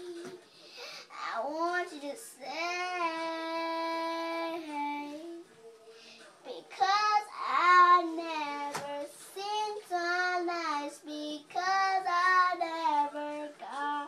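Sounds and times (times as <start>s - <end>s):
girl singing: 0.0s - 0.4s, 1.1s - 5.4s, 6.5s - 14.0s
girl breathing: 0.4s - 1.2s.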